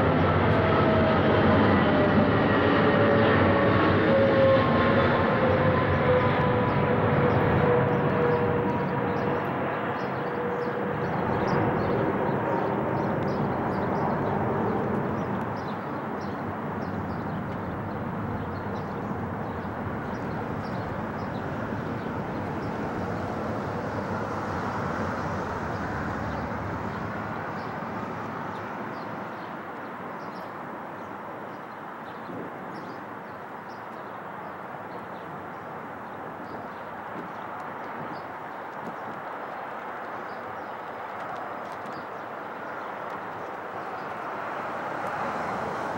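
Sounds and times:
jet engine whine: 0.0s - 31.7s
jet engines rumbling: 0.0s - 45.9s.

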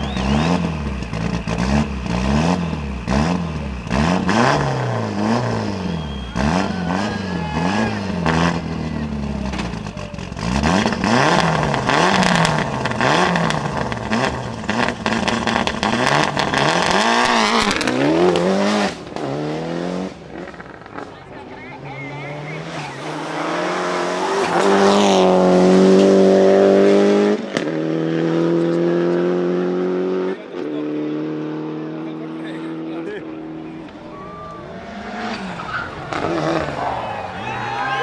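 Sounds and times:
rally car engine revving: 0.0s - 38.0s
exhaust pops: 8.2s - 19.3s.

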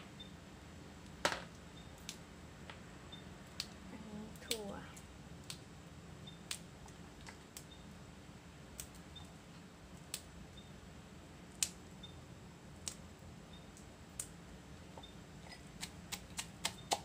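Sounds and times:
beans snapping by hand: 3.5s - 3.8s, 6.5s - 7.7s, 12.8s - 13.0s, 15.7s - 17.0s.

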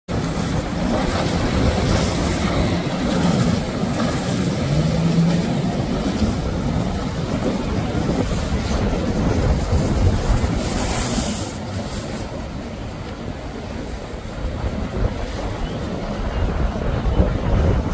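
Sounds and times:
jet ski engines: 0.1s - 17.9s
rushing water spray: 0.1s - 17.9s
wind rumble on microphone: 0.1s - 17.9s.

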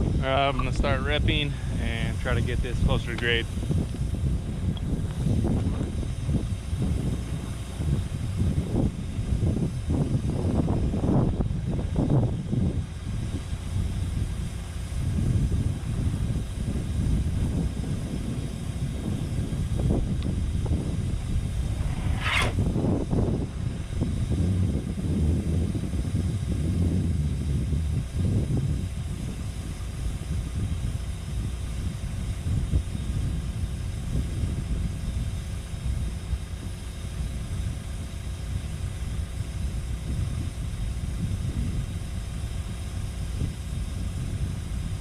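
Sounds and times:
ripper tooth rumbling through rock: 21.0s - 23.6s
short high falling screech: 21.4s - 23.1s.

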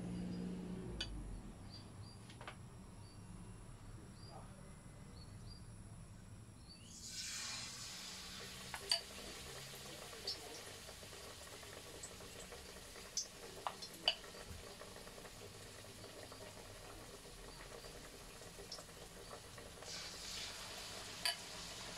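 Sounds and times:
deep-frying sizzle: 6.9s - 21.9s.

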